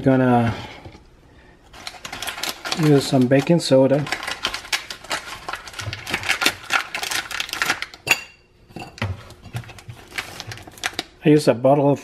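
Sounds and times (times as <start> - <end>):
bag crinkling: 1.7 - 8.0, 9.2 - 11.2.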